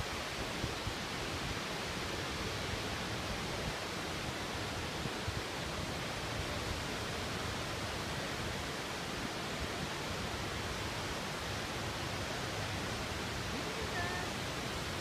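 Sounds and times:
waterfall rushing: 0.0s - 15.0s.

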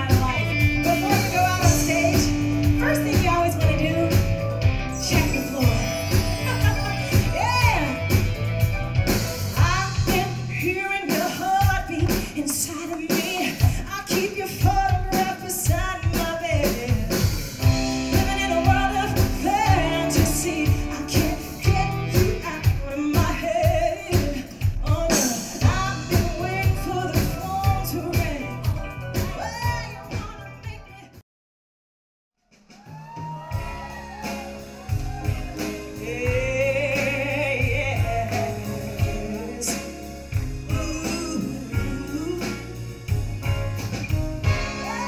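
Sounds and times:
woman singing into a microphone: 0.0s - 8.0s, 9.6s - 31.0s, 35.1s - 40.1s, 40.7s - 42.8s, 44.5s - 45.0s
keyboard: 0.0s - 13.2s
steady drum beat: 0.0s - 31.2s, 32.4s - 45.0s.

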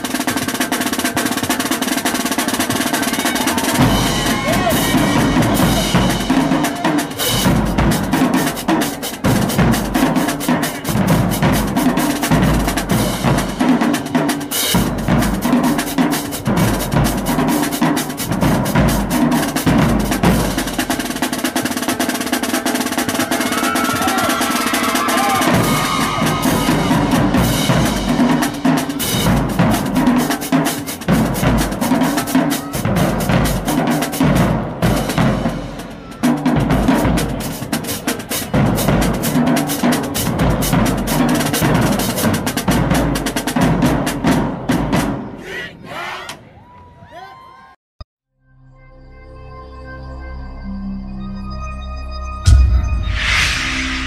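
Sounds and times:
snare drums rapid cadence: 0.0s - 45.1s
bass drums: 1.0s - 37.8s, 52.5s - 54.0s
crash cymbals: 52.5s - 54.0s.

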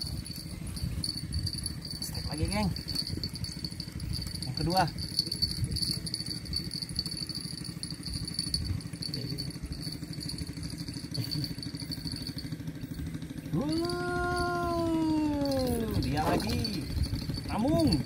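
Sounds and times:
fishing reel rattling: 0.0s - 18.0s
man calling out: 13.5s - 16.9s, 17.5s - 18.0s.

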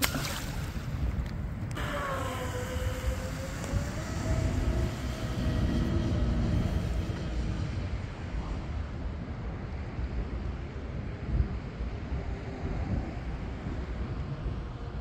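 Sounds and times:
wind rumble on microphone: 0.0s - 15.0s
rc boat motors whining: 1.7s - 8.7s.

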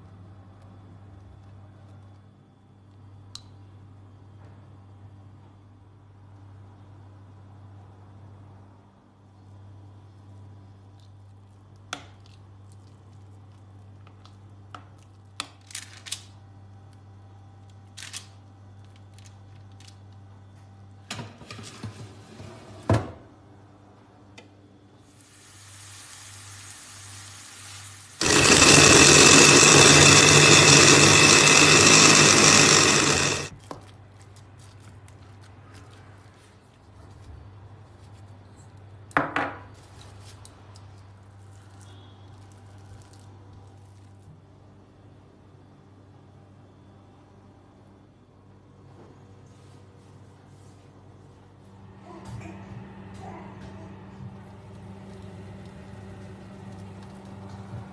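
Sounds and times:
food processor running: 28.2s - 33.5s, 52.2s - 57.9s.

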